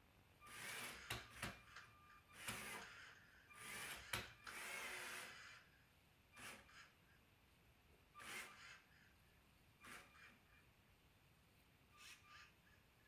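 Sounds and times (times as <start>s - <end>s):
toy robot motors whirring: 0.4s - 7.0s, 8.1s - 9.1s, 9.8s - 10.6s, 11.9s - 12.8s.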